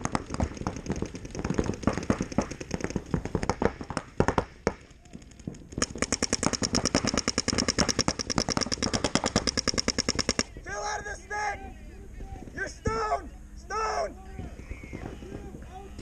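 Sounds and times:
paintball markers firing: 0.0s - 10.6s.

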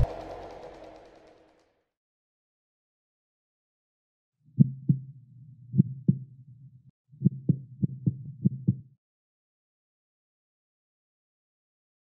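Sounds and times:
steady low hum: 0.0s - 1.5s
heartbeat thumps: 5.8s - 6.3s, 7.2s - 8.9s.

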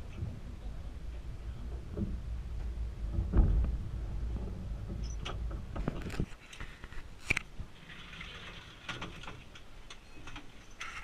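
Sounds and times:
tram cabin rumbling: 0.0s - 6.0s
sharp clicks and knocks: 1.7s - 7.5s.

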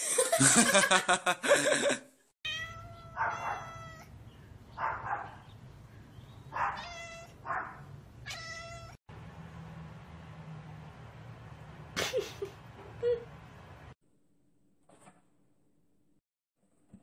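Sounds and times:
cat meowing: 2.4s - 4.1s, 6.6s - 7.4s, 8.2s - 9.0s.

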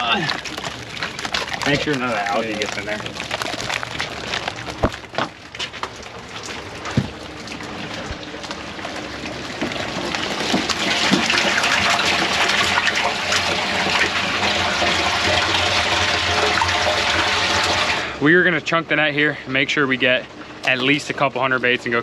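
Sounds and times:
water gushing into a tank: 0.0s - 22.0s.

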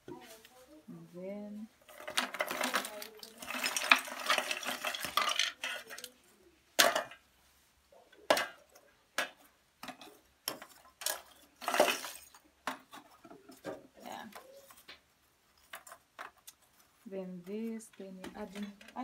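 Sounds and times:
charcoal lumps clattering: 1.4s - 7.3s, 8.2s - 19.0s
charcoal pieces clinking: 1.8s - 6.2s, 6.8s - 7.2s, 8.3s - 16.9s.

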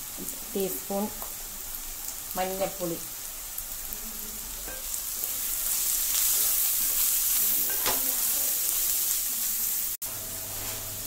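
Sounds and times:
onions sizzling in hot oil: 0.0s - 11.0s
wooden spatula stirring in pan: 4.6s - 9.2s.

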